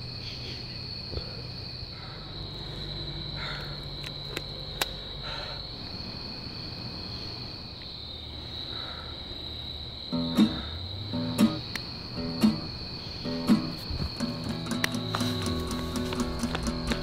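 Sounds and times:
crickets chirping: 0.0 - 17.0
sharp clicks: 11.4 - 12.6.

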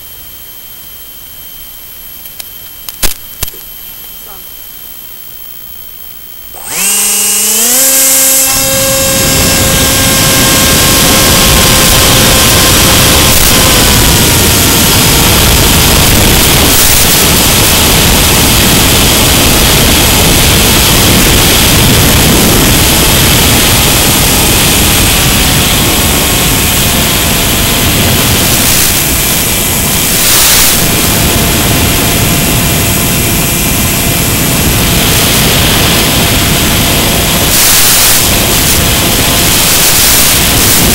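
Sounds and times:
electric motor whine: 0.0 - 40.9
propeller and wind rush: 6.6 - 40.9.

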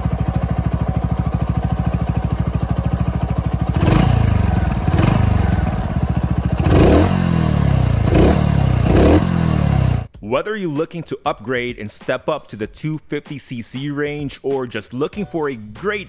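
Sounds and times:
motorcycle engine idling and revving: 0.0 - 10.1.

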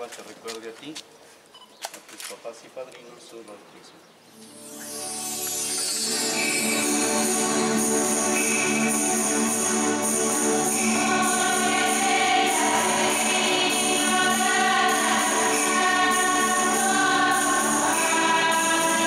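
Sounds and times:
instrumental accompaniment: 4.3 - 19.0
choir singing: 4.7 - 19.0.

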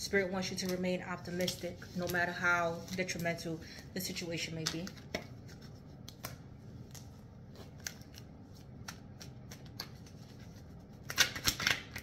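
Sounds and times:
cards being shuffled: 4.6 - 12.0.

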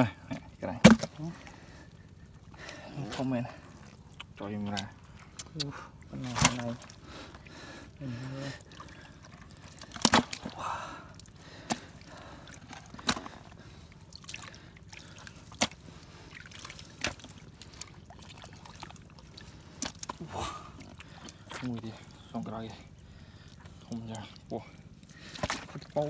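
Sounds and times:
water trickling and sloshing: 0.0 - 26.0
fish thrashing in plastic bucket: 0.4 - 1.5, 6.2 - 7.0, 8.7 - 10.6, 11.4 - 20.2, 25.2 - 26.0
wet slaps and knocks: 0.7 - 1.2, 4.2 - 6.9, 9.8 - 10.5, 11.6 - 11.9, 12.9 - 13.4, 15.5 - 15.9, 17.0 - 17.3, 19.8 - 20.2, 25.3 - 26.0.

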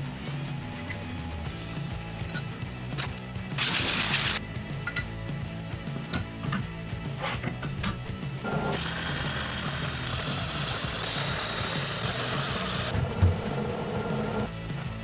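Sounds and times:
background music: 0.0 - 15.0
welder arc hissing: 8.8 - 12.9.

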